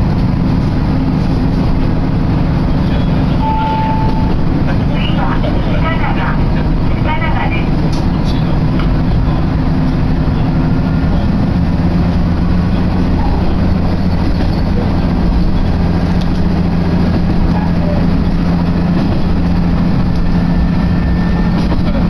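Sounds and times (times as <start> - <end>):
diesel engine hum: 0.0 - 22.0
wheels rumbling on rails: 0.0 - 22.0.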